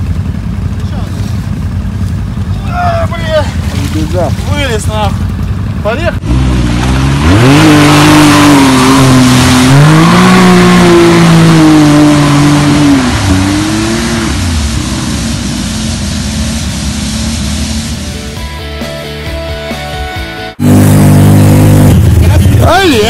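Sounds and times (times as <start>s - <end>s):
engine revving hard: 6.2s - 15.7s, 20.6s - 22.7s.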